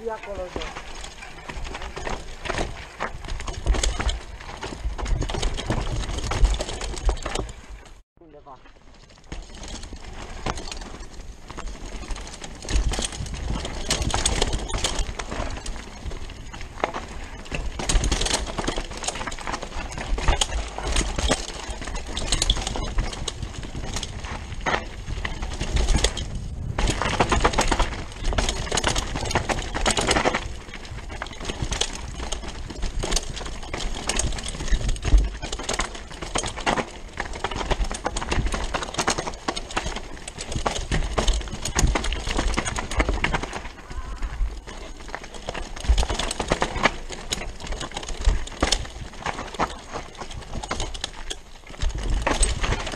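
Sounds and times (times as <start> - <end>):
mountain bike rattling over rough trail: 0.0 - 52.9
wind rumbling on microphone: 9.8 - 38.8, 39.9 - 49.5.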